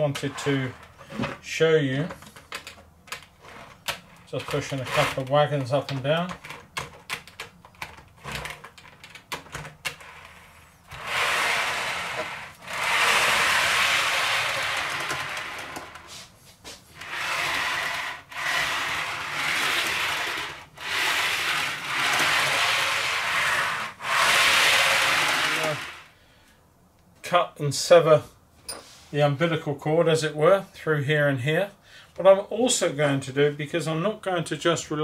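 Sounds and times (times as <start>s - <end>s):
model train wagons rolling: 11.0s - 16.0s, 17.0s - 26.1s.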